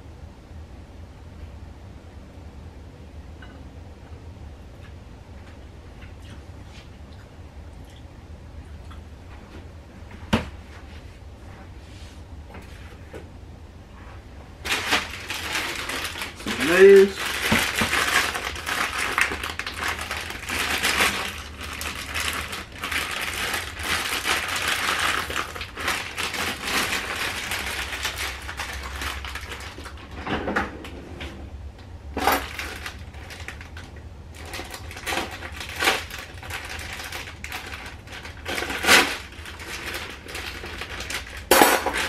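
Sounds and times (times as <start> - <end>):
plastic packet crinkling: 14.6 - 30.2, 32.2 - 42.0.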